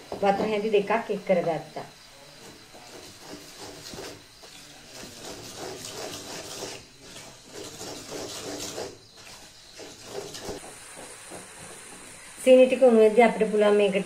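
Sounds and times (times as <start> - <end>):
spoon scraping through sugar: 2.3 - 12.2.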